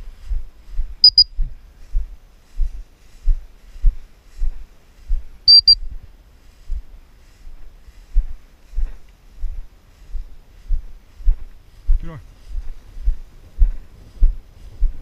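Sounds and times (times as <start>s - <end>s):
high double beeps: 1.0s - 1.4s, 5.5s - 5.8s.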